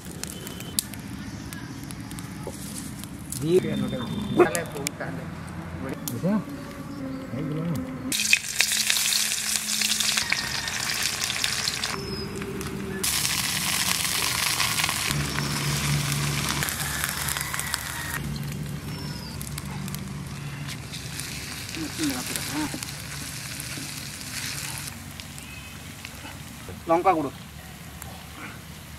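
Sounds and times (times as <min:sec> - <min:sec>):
food sizzling in hot oil: 0:08.1 - 0:12.2, 0:13.0 - 0:19.5, 0:20.8 - 0:25.4.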